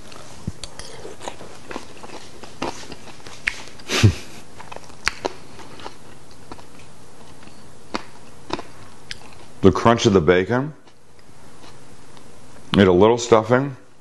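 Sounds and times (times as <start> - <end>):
person chewing crunchy food: 0.0 - 9.6, 10.8 - 12.2
wet mouth clicks: 3.4 - 3.9.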